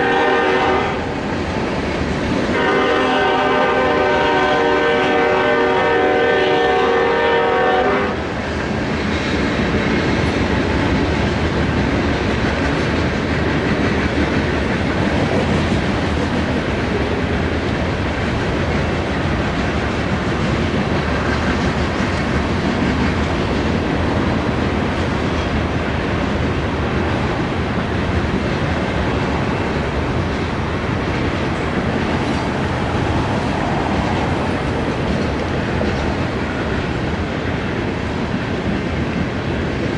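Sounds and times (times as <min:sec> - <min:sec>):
locomotive horn chord: 0:00.0 - 0:01.1, 0:02.5 - 0:08.2
train cars rolling on rails: 0:00.0 - 0:39.9.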